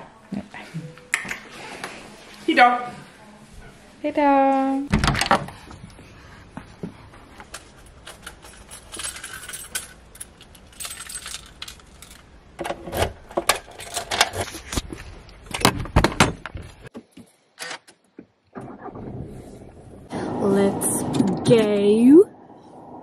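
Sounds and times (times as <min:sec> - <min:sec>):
keys jangling: 0:07.6 - 0:12.3.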